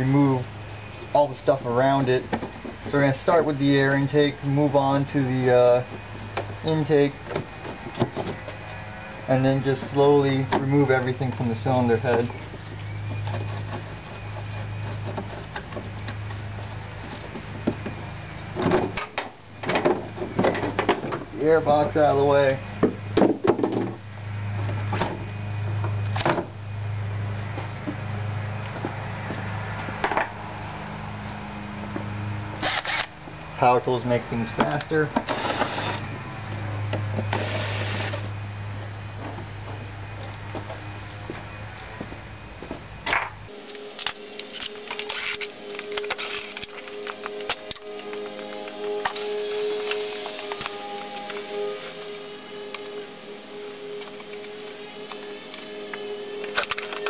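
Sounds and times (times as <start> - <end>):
steady low hum: 0.0 - 57.0
cordless drill motor whining: 32.6 - 33.2, 34.4 - 36.2, 36.8 - 38.3, 43.7 - 57.0.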